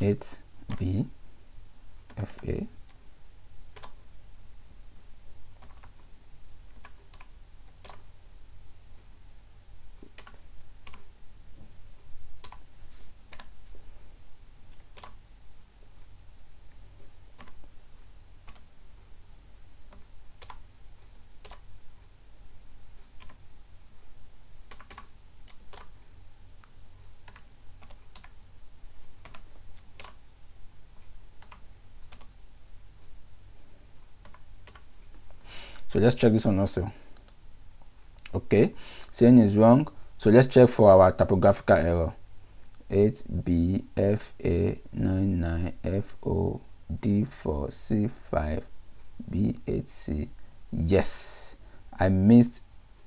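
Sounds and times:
steady low hum: 0.0 - 53.0
keyboard keystrokes: 3.7 - 4.0, 5.6 - 6.0, 6.7 - 8.1, 10.0 - 11.1, 12.4 - 12.6, 14.7 - 15.2, 17.3 - 17.6, 18.4 - 18.7, 19.9 - 20.6, 21.4 - 21.7, 23.2 - 23.4, 24.7 - 26.0, 27.2 - 28.4, 29.2 - 30.2, 31.4 - 32.3, 34.2 - 34.9.

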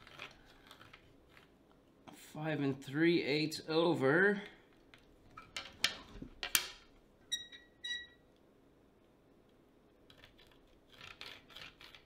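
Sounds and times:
short squeaks: 7.3 - 8.2
grease pencil scratching ball: 10.1 - 12.0.

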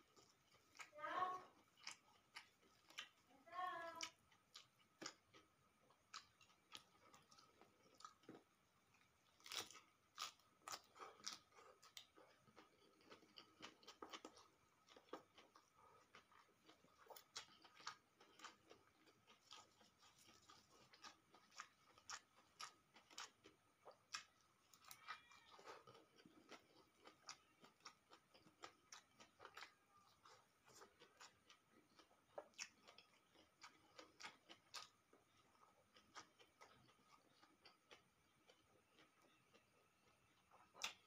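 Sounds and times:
person chewing food: 0.0 - 41.0.

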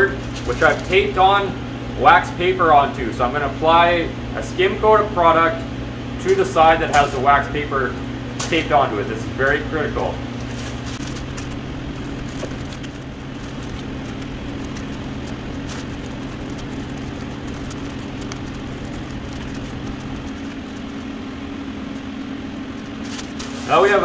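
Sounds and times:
shop equipment hum: 0.0 - 24.0
plastic spreader scraping: 0.1 - 1.2, 10.4 - 24.0.

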